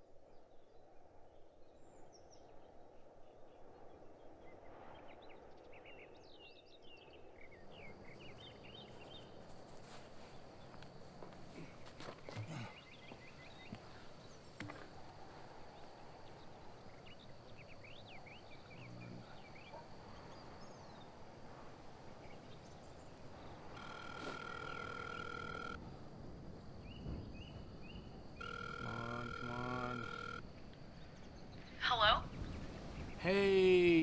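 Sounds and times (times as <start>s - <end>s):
birds chirping faintly: 0.0s - 34.0s
telephone ringback tone: 23.7s - 25.8s, 28.4s - 30.4s.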